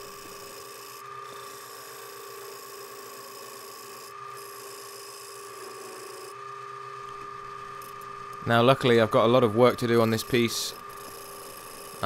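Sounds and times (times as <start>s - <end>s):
wood lathe whining: 0.0s - 12.0s.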